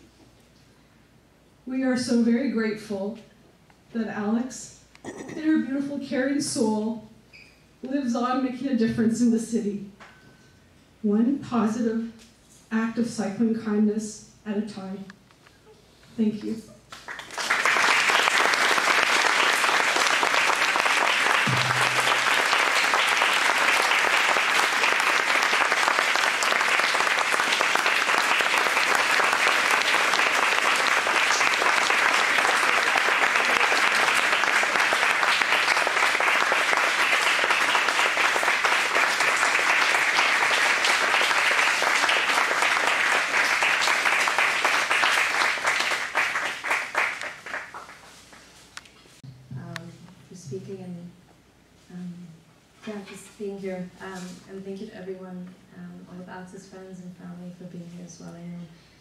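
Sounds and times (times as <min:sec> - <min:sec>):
audience applauding: 0:16.9 - 0:48.4.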